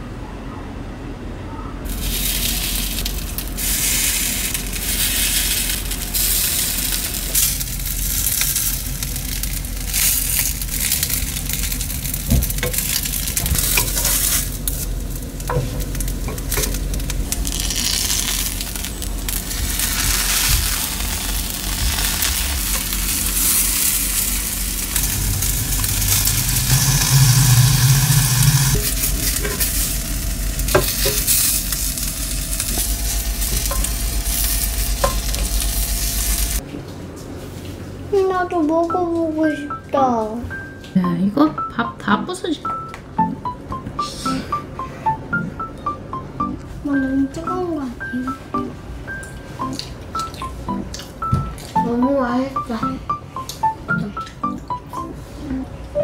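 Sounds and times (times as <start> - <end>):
food sizzling in a pan: 1.9 - 14.7, 15.6 - 36.6.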